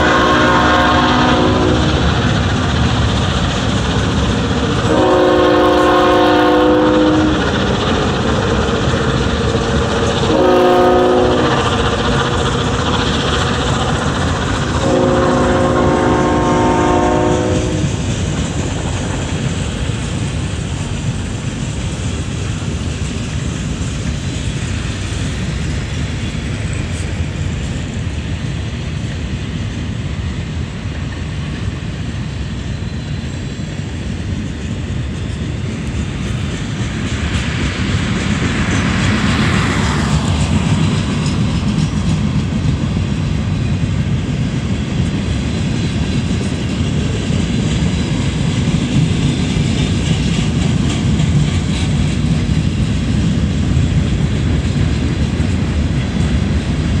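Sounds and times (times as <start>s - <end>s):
locomotive horn blasts: 0.0s - 1.9s, 4.9s - 7.5s, 10.3s - 11.7s, 14.8s - 17.9s
freight cars rumbling and clattering: 0.0s - 57.0s.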